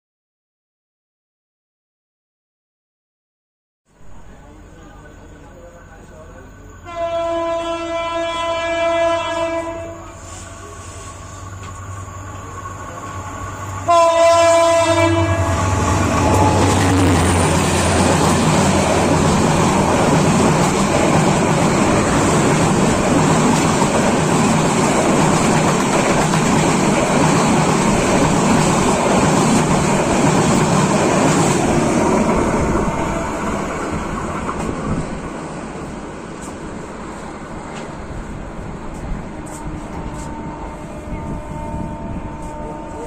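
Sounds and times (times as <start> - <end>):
train coaches rattling past: 4.1 - 43.0
train horn blast: 6.8 - 11.4, 13.8 - 17.0, 40.0 - 43.0.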